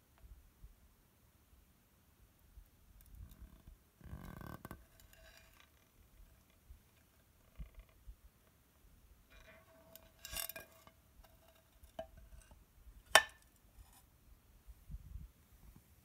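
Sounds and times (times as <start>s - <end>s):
glass scraping on wood: 4.1s - 5.9s, 9.3s - 12.6s.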